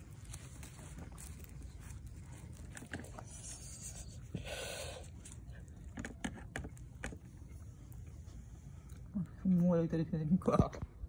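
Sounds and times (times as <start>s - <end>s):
plastic wrapping crinkling: 0.0s - 3.6s.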